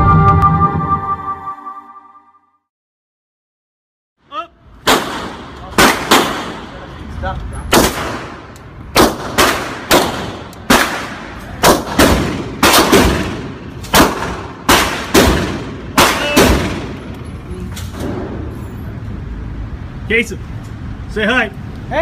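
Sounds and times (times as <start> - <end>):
pistol shots with ringing echo: 4.8 - 6.8, 7.7 - 17.1.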